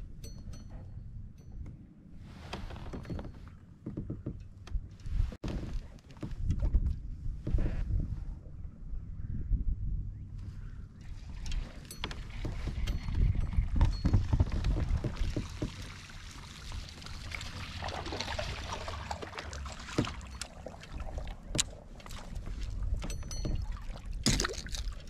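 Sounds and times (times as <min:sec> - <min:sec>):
low wind rumble: 0:00.0 - 0:25.0
water around a kayak: 0:10.1 - 0:25.0.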